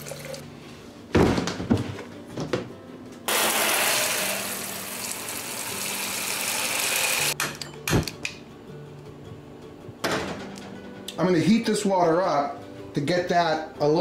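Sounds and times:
sink sprayer spraying water: 0:03.3 - 0:07.4.

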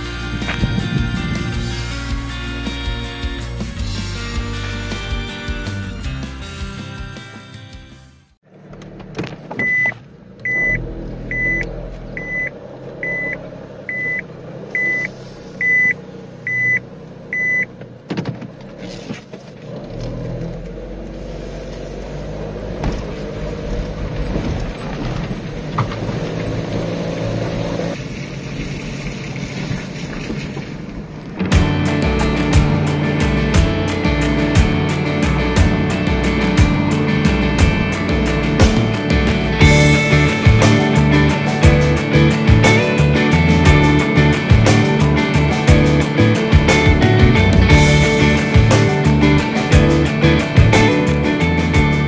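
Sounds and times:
car engine hum: 0:00.0 - 0:07.4, 0:08.4 - 0:52.0
road noise: 0:00.0 - 0:52.0
car warning beeps: 0:09.5 - 0:17.8.

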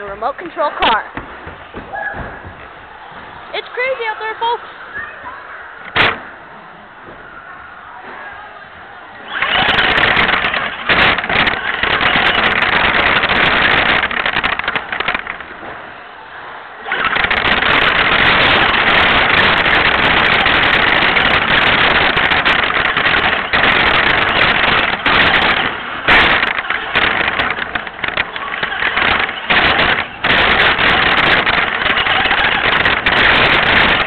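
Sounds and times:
remote-control car motor and wheels: 0:09.2 - 0:15.5, 0:16.8 - 0:34.0.

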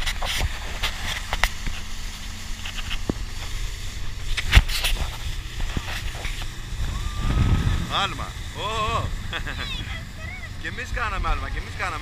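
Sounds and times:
motorboat engine running: 0:00.0 - 0:12.0
water rushing along hull: 0:00.0 - 0:12.0
wind on microphone: 0:02.8 - 0:11.7.

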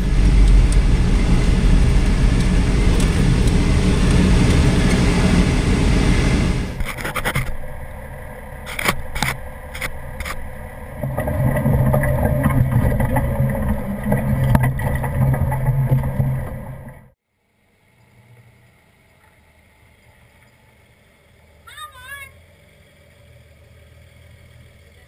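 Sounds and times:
tyres on gravel trail: 0:00.0 - 0:17.2
vehicle engine droning: 0:00.0 - 0:25.0.

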